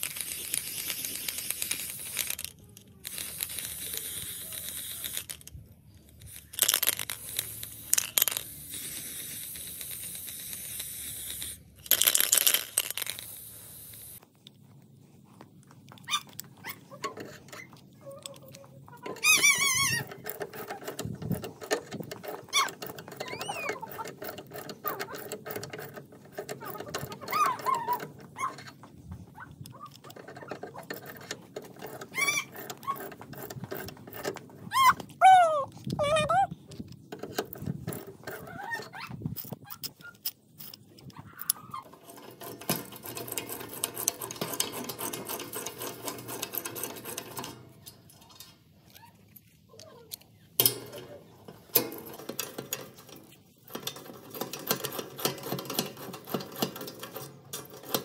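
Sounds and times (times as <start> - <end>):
metallic clicking of crank and jack: 0.0 - 14.2, 16.3 - 28.9, 29.5 - 35.2, 35.8 - 58.0
aerosol spray paint hissing: 0.1 - 2.4, 3.1 - 5.3, 7.2 - 11.7.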